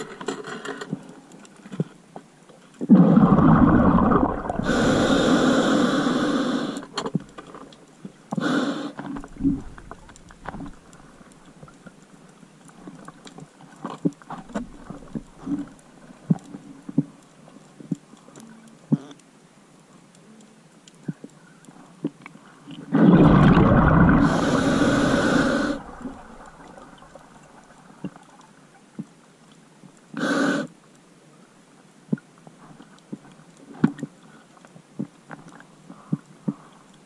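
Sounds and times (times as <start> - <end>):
faint underwater clicks and pops: 0.0 - 37.0
exhaled bubbles underwater: 2.9 - 6.0, 22.9 - 28.2
regulator hissing inhalation: 4.2 - 7.0, 8.4 - 9.0, 23.6 - 27.1, 30.2 - 30.7.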